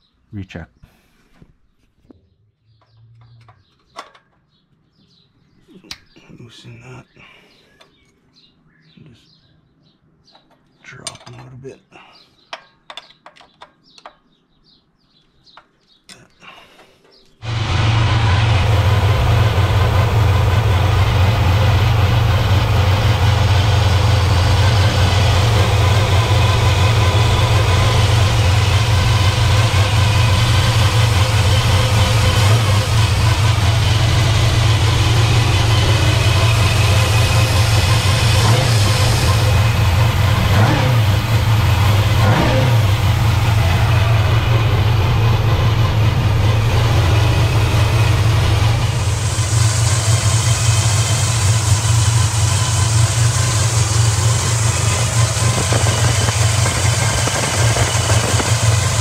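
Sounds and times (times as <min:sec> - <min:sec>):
car engine idling and revving: 0:17.4 - 0:59.0.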